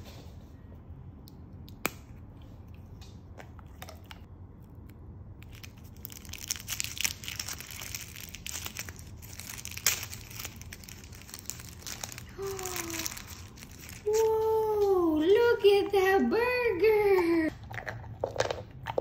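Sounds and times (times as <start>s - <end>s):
paper wrapper crinkling and tearing: 5.4s - 15.2s.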